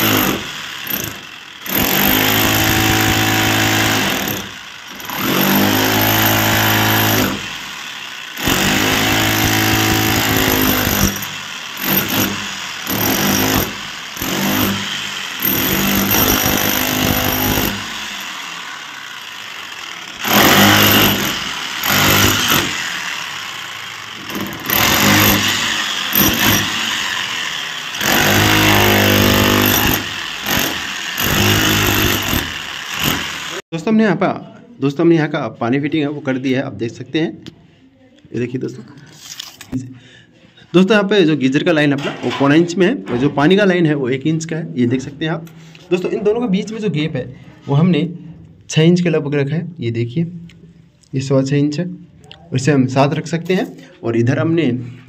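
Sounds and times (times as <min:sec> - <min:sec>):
power tool cutting brick: 0:00.0 - 0:33.7.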